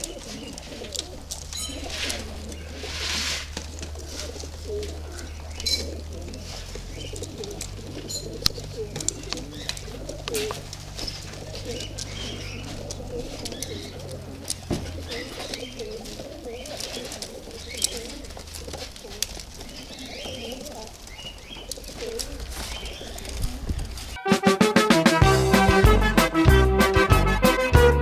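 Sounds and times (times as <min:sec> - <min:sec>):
pigeons cooing: 0:00.0 - 0:24.2
music: 0:24.2 - 0:28.0.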